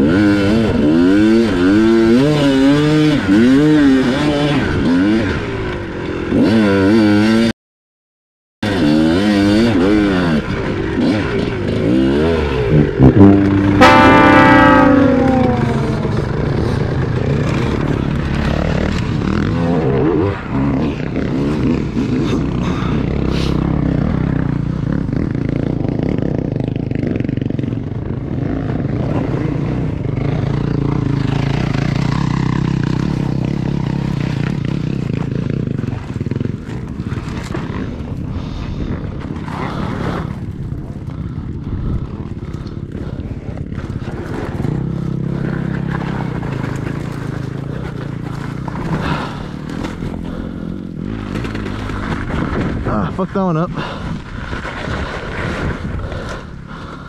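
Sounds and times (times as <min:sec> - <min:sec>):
dirt bike engine revving: 0:00.0 - 0:07.5, 0:08.6 - 0:41.4, 0:42.0 - 0:56.5
clatter from riding: 0:42.1 - 0:53.1.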